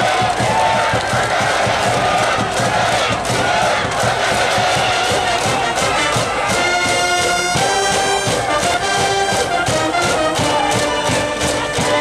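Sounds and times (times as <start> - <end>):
brass band playing: 0.0 - 12.0
steady drum beat: 0.0 - 12.0.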